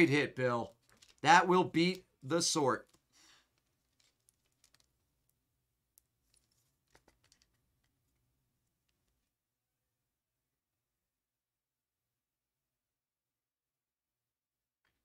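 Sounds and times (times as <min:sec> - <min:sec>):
faint clicks and taps: 0:02.8 - 0:08.2.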